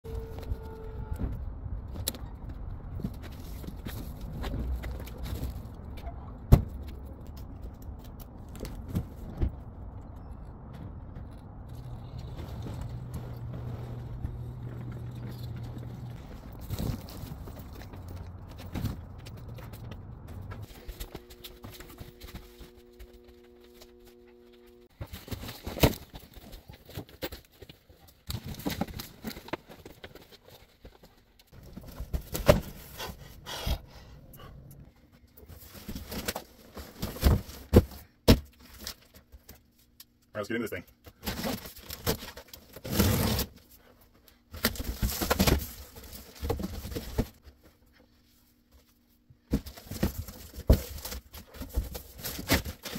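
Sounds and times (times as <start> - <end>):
low steady hum: 0.1 - 52.9
low rumble: 4.2 - 20.9
footsteps: 10.7 - 25.0
steady hum: 18.7 - 25.0.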